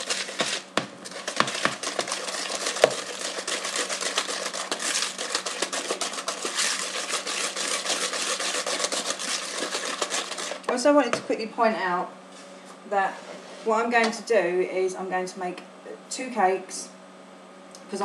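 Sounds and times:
whisk clicking and scraping bowl: 0.0 - 10.8.

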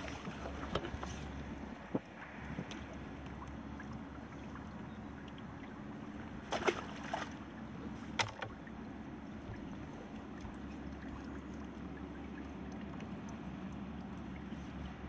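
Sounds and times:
low outdoor background: 0.0 - 15.0
fishing tackle knocks and clatter: 8.2 - 8.6.

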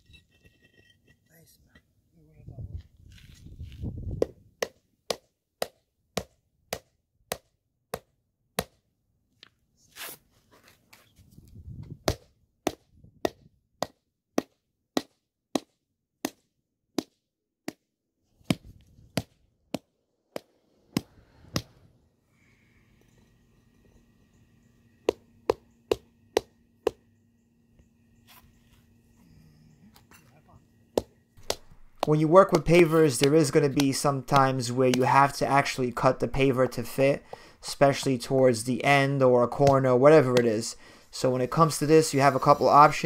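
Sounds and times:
rubber mallet knocking pavers: 4.1 - 8.8, 12.0 - 21.8, 25.0 - 27.0, 30.9 - 35.4, 39.5 - 40.6.

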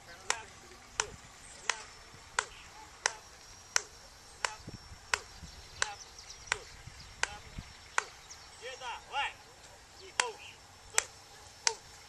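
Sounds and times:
sharp hand claps: 0.2 - 3.2, 10.2 - 10.4, 11.0 - 11.9.

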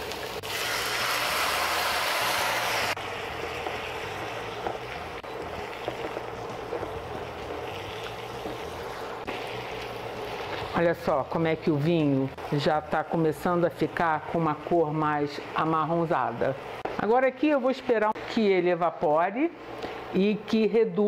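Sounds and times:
chicken sizzling in a wok: 0.0 - 14.0.

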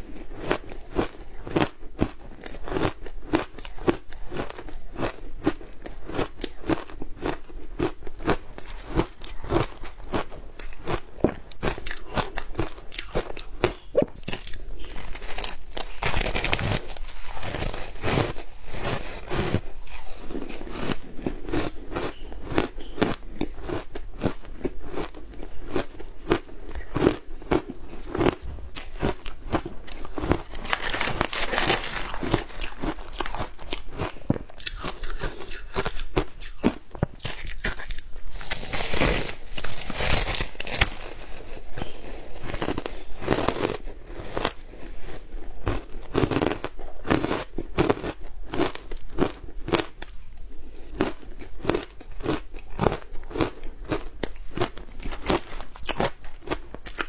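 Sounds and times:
crunching ice being chewed: 0.0 - 57.0.

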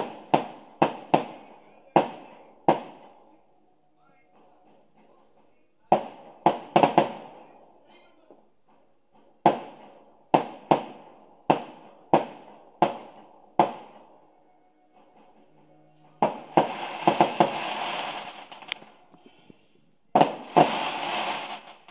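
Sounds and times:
firework bangs: 0.0 - 3.2, 5.9 - 7.6, 8.6 - 14.1, 16.2 - 21.9
fireworks crackling: 0.0 - 3.3, 5.9 - 7.6, 8.6 - 14.0, 16.2 - 21.9.

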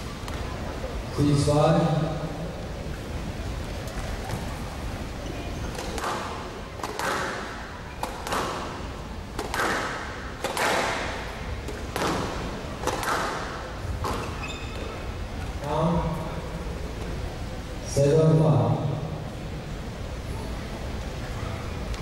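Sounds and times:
squash ball hitting rackets and walls: 5.7 - 15.0.

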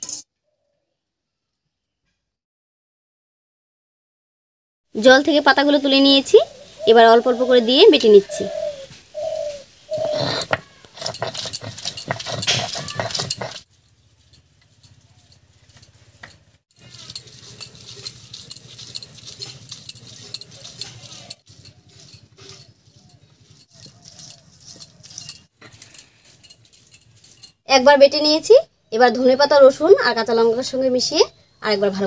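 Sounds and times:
stone-on-stone taps and scrapes: 10.0 - 13.6
stone roller knocking and clacking: 10.0 - 13.7, 14.3 - 27.5.

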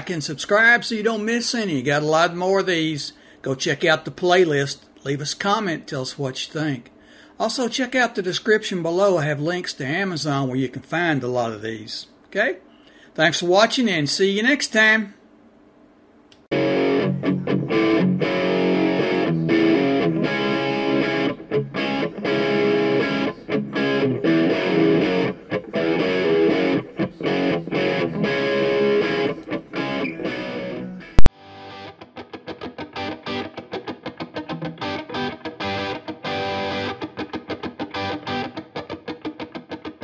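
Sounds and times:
distorted guitar music: 16.5 - 40.0.

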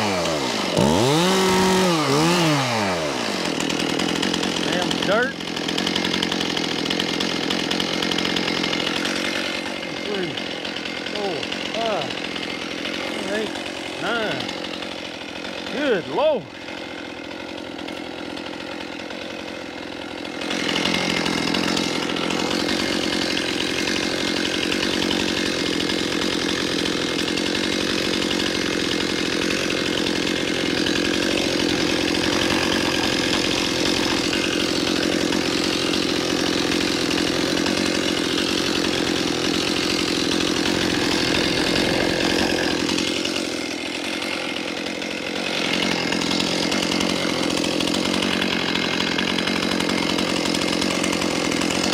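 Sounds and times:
chainsaw cutting stumps: 0.0 - 51.9.

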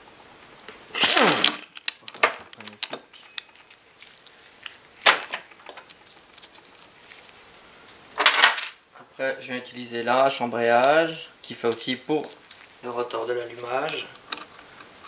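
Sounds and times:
light metal clinks: 1.7 - 3.8, 5.8 - 6.9.

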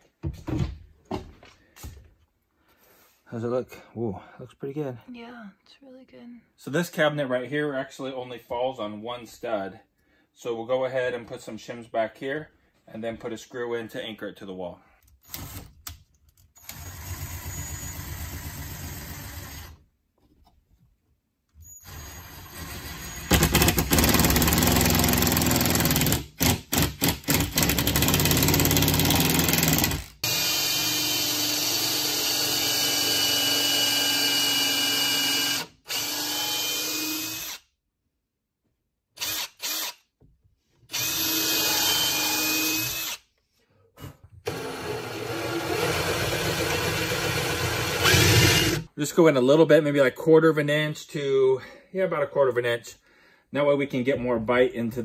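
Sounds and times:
cordless drill drilling into wood: 16.6 - 19.8, 21.8 - 37.6, 39.2 - 40.0, 40.9 - 43.2, 44.4 - 48.9.

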